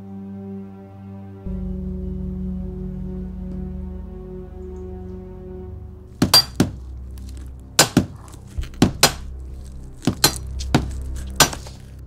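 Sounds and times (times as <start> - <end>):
sharp chopping blows: 6.2 - 9.4, 10.0 - 11.9.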